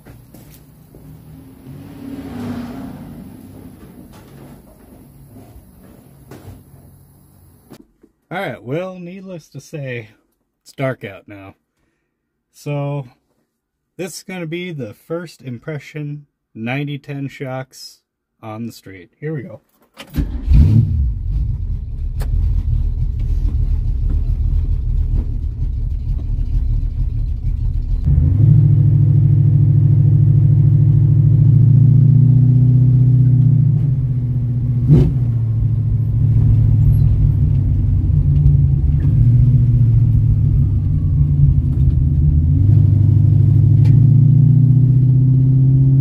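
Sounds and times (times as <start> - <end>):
car engine rumbling and accelerating: 0.0 - 7.8, 20.1 - 46.0.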